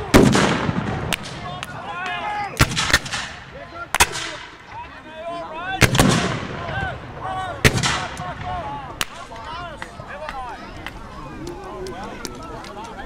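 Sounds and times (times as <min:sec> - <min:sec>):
rifle shots: 0:00.1 - 0:01.4, 0:05.8 - 0:06.5.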